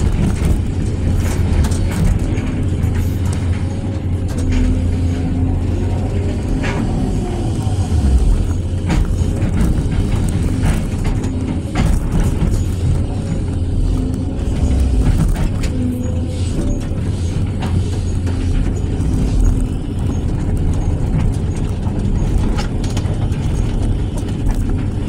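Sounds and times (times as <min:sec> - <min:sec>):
diesel engine running: 0:00.0 - 0:25.0.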